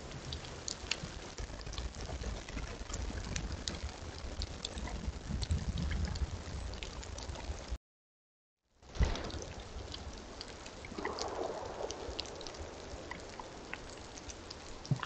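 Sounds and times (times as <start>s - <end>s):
light ticks: 0.0s - 7.3s
low rumble and hiss: 8.8s - 15.0s.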